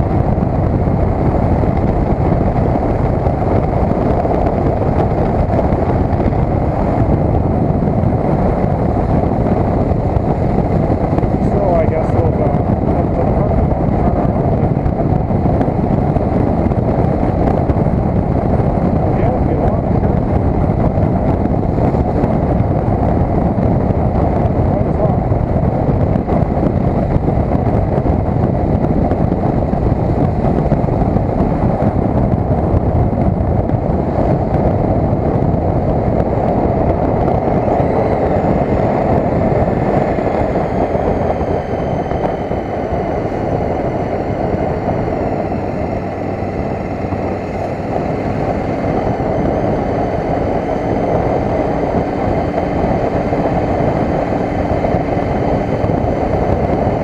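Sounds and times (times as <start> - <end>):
motorcycle engine running: 0.0 - 57.0
wind buffeting microphone: 0.0 - 57.0.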